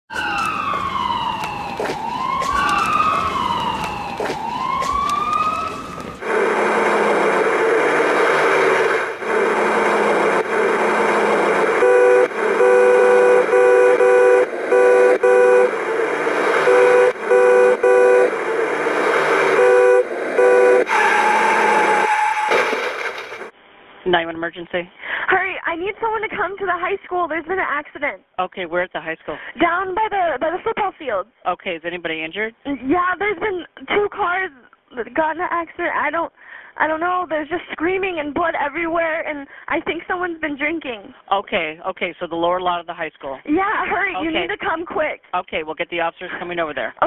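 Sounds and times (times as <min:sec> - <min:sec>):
emergency siren wailing: 0:00.1 - 0:23.5
traffic noise: 0:00.1 - 0:23.6
horn short blasts: 0:06.2 - 0:15.8, 0:16.6 - 0:18.4, 0:19.5 - 0:22.7.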